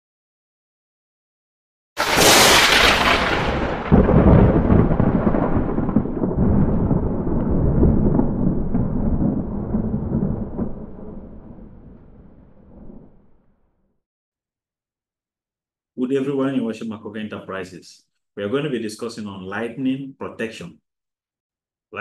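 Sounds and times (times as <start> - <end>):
thunder rumbling: 2.0 - 13.7.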